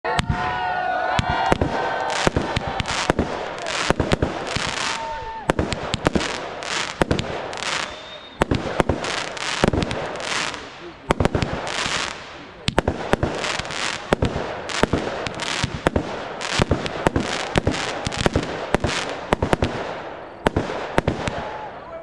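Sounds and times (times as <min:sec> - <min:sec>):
fireworks bangs: 0:00.1 - 0:22.0
fireworks hissing and crackling: 0:01.2 - 0:21.6.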